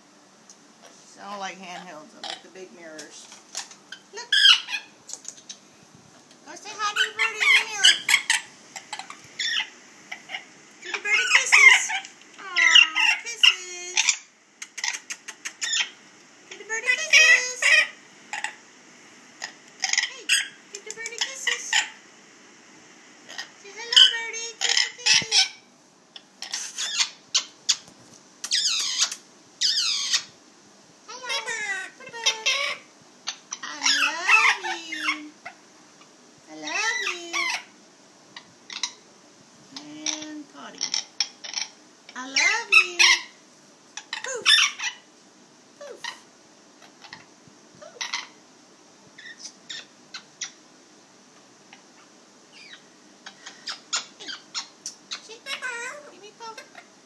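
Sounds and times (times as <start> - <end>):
parrot squawking: 1.8 - 2.5, 3.9 - 5.6, 6.6 - 18.6, 19.4 - 22.0, 23.3 - 27.8, 28.5 - 30.3, 31.1 - 35.6, 36.6 - 37.8, 38.4 - 39.0, 40.0 - 43.4, 44.0 - 45.1, 45.8 - 48.4, 49.2 - 50.6, 51.7 - 56.9.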